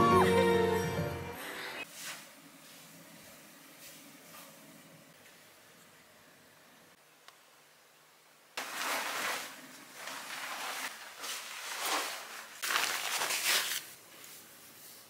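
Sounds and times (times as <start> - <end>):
duvet rustling and swishing: 8.6 - 13.9.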